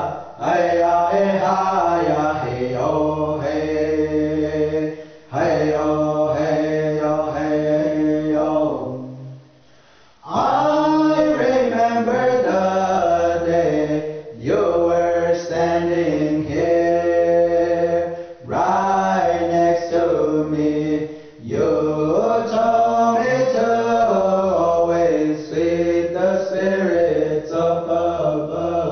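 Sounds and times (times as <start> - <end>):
men singing chant: 0.0 - 9.4, 10.2 - 28.9.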